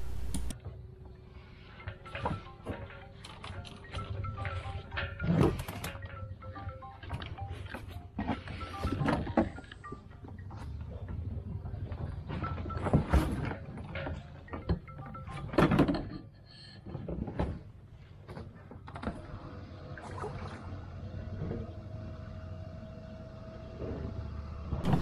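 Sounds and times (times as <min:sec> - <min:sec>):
faint steady hum: 0:00.0 - 0:05.1.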